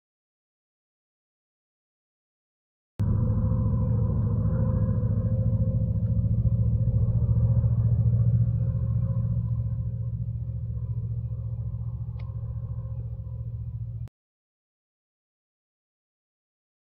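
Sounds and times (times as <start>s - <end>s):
truck engine rumbling: 3.0s - 14.1s.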